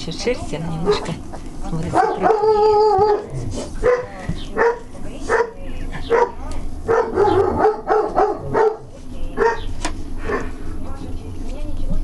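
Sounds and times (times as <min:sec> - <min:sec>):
dog barking: 0:01.9 - 0:09.7.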